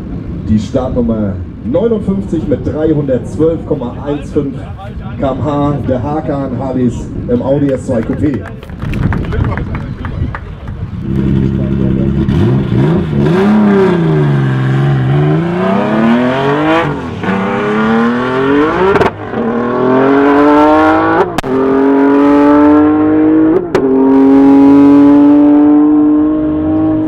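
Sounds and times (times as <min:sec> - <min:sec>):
car engine accelerating hard: 0:10.9 - 0:27.0.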